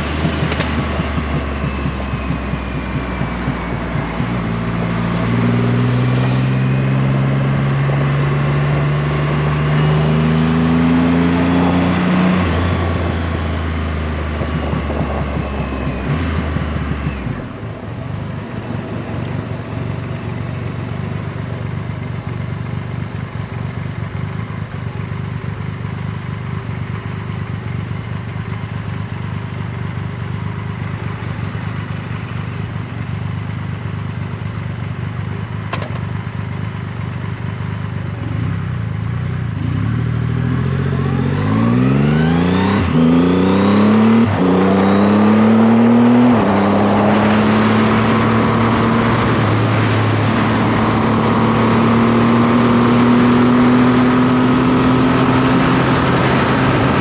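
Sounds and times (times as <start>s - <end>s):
gear change: 0.0s - 8.1s, 10.8s - 20.6s
motorcycle engine revving: 0.0s - 25.3s, 38.0s - 57.0s
wind noise: 14.0s - 17.5s.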